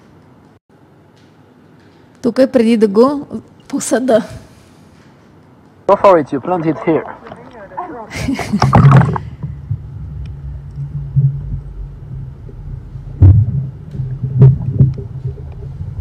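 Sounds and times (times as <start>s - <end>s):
muffled underwater rumble: 5.9s - 16.0s.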